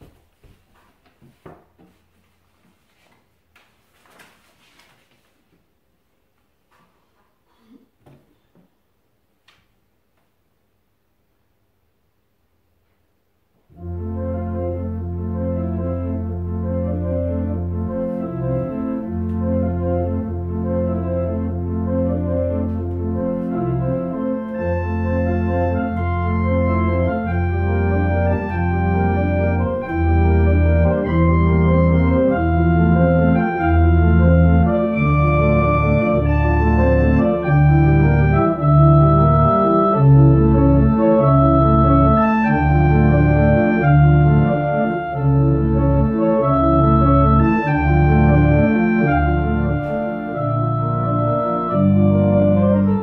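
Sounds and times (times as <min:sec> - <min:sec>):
electronic organ playing chords: 0:13.7 - 0:53.0
organ bass line: 0:13.7 - 0:53.0.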